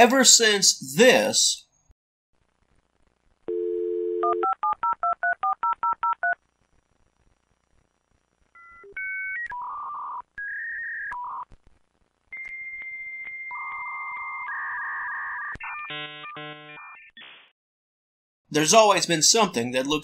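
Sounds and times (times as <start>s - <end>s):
dial tone: 3.5s - 6.4s.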